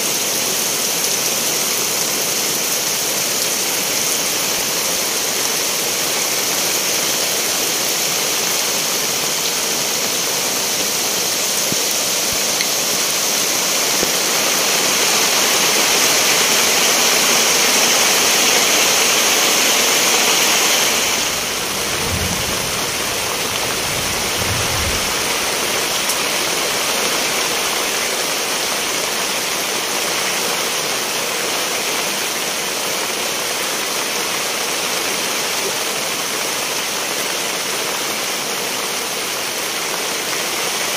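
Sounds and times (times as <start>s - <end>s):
heavy rain: 0.0s - 40.9s
low thuds: 21.2s - 27.9s.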